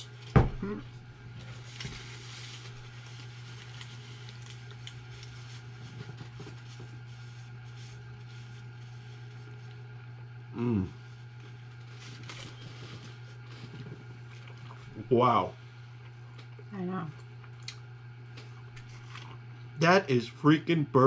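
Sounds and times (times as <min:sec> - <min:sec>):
quiet eating: 0:00.0 - 0:20.3
low steady hum: 0:00.0 - 0:21.0
foil and paper crinkling: 0:01.3 - 0:09.8, 0:11.4 - 0:14.9.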